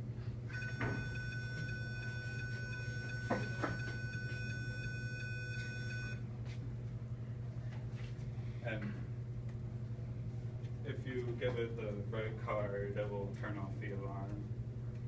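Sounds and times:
high-pitched electronic alarm tone: 0.5s - 6.2s.

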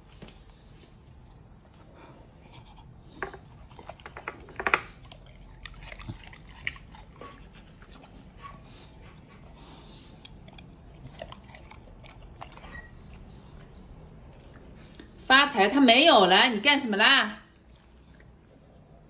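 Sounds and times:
dog crunching food: 3.6s - 8.1s, 10.2s - 13.3s.

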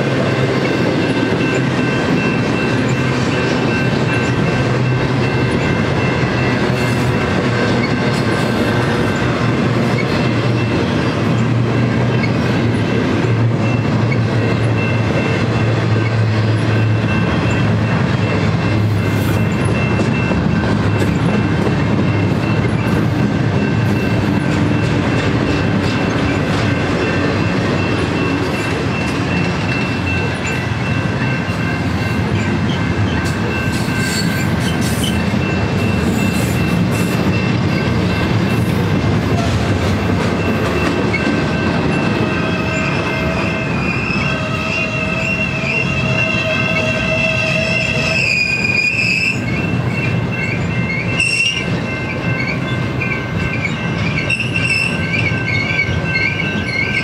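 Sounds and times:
train wheels rumbling on rails: 0.0s - 57.0s
wheel squeal: 32.8s - 37.1s, 42.4s - 57.0s.

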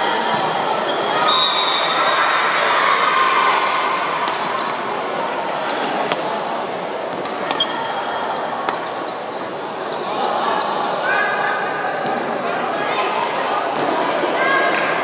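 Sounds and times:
murmur of voices: 0.0s - 15.0s
racket hitting shuttlecock: 5.7s - 6.5s, 7.1s - 7.9s, 8.6s - 9.2s
shoes squeaking on wooden court: 7.5s - 11.0s.

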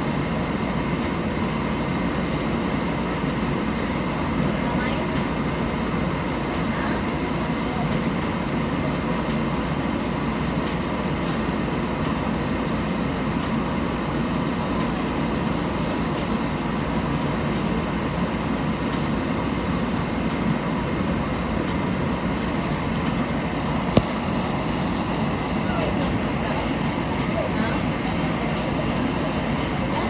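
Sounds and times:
streetcar equipment hum: 0.0s - 30.0s
heavy rain: 2.5s - 30.0s.

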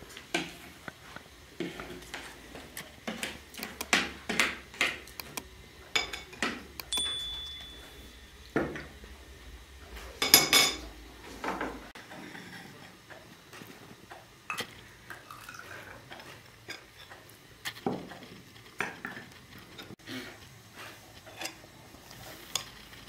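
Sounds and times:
cutlery clinking against glasses: 6.0s - 8.6s, 10.2s - 10.9s.

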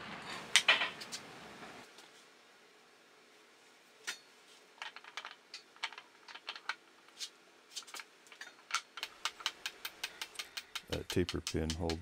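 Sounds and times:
metal clicks and taps: 8.3s - 12.0s.

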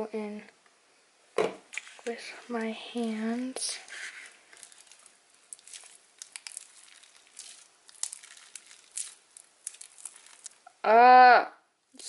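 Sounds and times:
sticky slime clicks and crackles: 4.5s - 10.7s.

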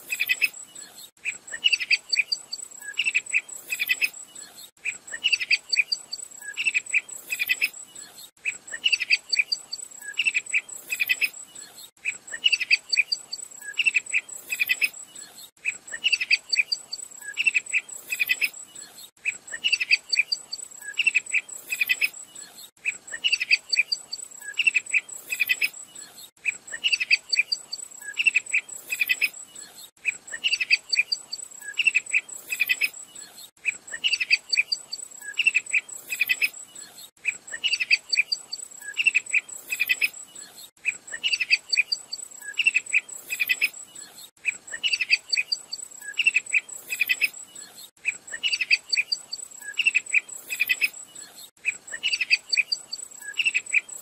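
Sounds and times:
insect trill: 19.7s - 22.7s, 23.3s - 29.6s, 33.9s - 37.0s, 37.6s - 54.0s.

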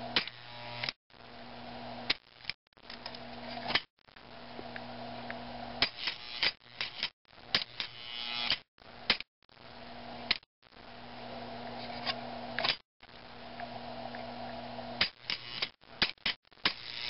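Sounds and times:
electrical mains hum: 0.0s - 16.0s
sharp click: 5.8s - 9.3s.

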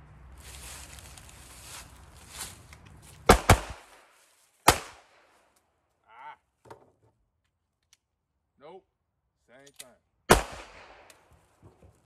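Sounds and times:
pistol shots: 3.3s - 4.0s, 4.6s - 5.2s, 10.3s - 11.1s.

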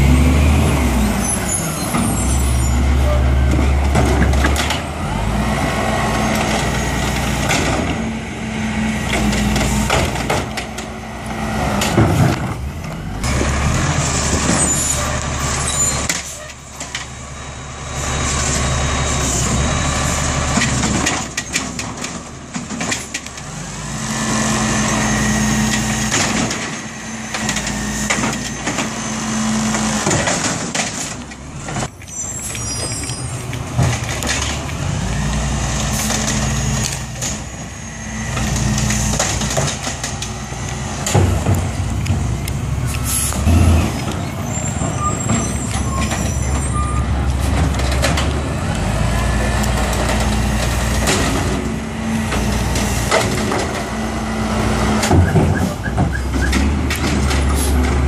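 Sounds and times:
garbage truck engine revving: 0.0s - 58.0s
air brake hisses and squeals: 42.9s - 43.4s.

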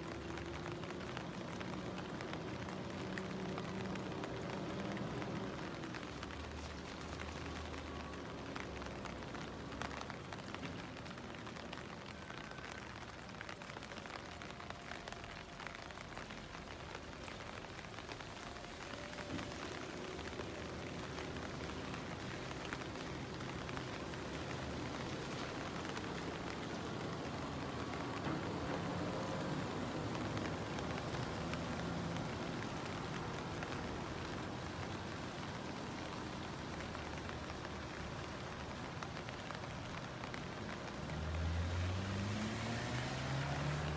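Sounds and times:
truck engine rumble: 0.0s - 42.4s
heavy rain on pavement: 0.0s - 43.9s.

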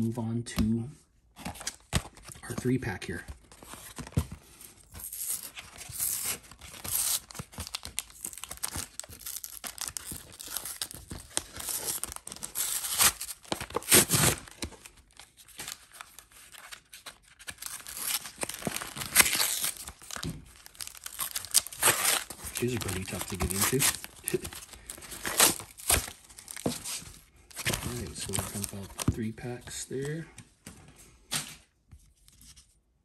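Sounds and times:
cardboard tearing: 3.5s - 29.2s.

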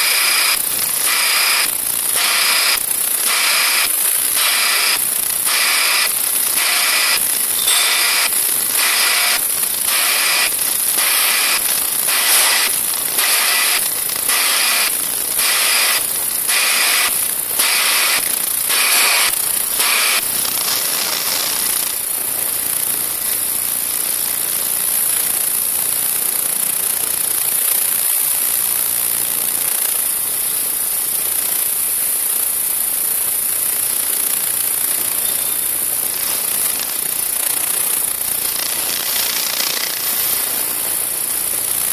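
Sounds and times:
vibrating sieve machine hiss: 29.7s - 41.9s.

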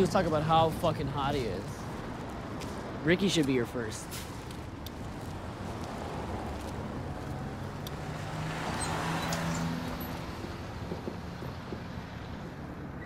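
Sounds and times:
car passing by: 5.5s - 13.0s.

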